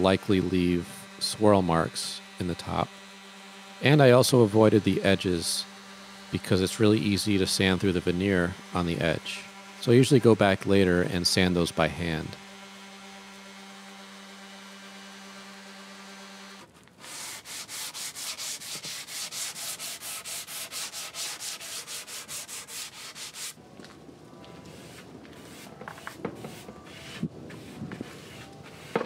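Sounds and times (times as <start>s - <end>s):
orbital sander humming: 0.0s - 23.6s, 24.3s - 29.0s
sanding sponge rubbing wood: 0.0s - 23.6s, 24.7s - 29.0s.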